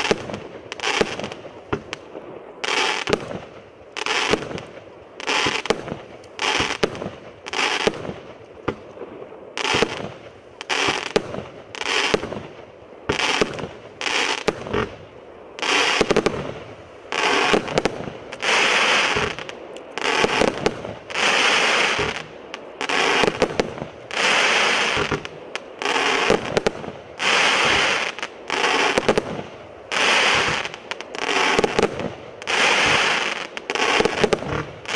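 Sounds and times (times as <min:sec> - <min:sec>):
firework bangs with crackling: 0:00.0 - 0:34.9.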